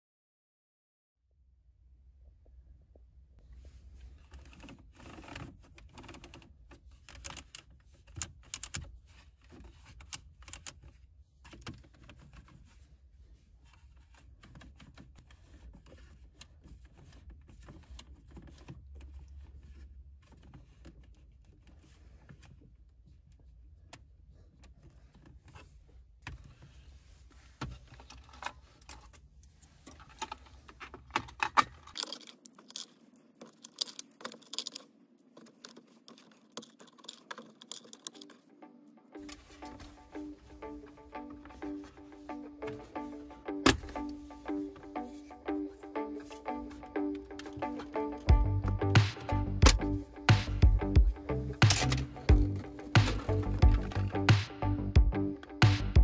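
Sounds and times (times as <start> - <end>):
plastic knobs clicking and rattling: 4.3 - 12.7, 27.6 - 38.5, 39.2 - 54.4
low steady hum: 39.2 - 56.0.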